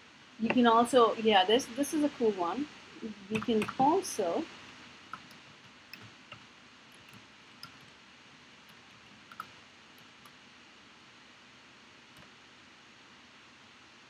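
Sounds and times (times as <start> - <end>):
keyboard keys clicking: 3.3 - 3.9, 5.1 - 7.9, 8.7 - 10.4.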